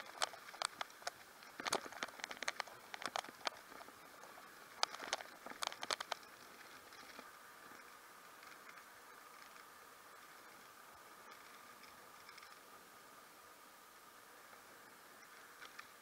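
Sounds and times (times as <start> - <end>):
bicycle rattling over paving: 0.0 - 7.3
faint steady hiss: 0.0 - 16.0.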